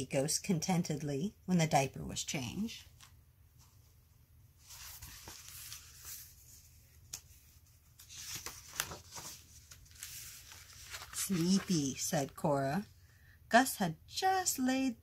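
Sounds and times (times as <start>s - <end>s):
book pages rustling: 2.9s - 12.5s.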